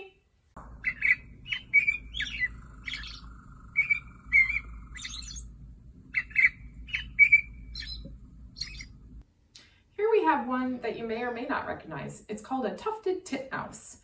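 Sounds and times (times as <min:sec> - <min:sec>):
low background hum: 0:00.0 - 0:12.9
robin singing: 0:00.6 - 0:09.2.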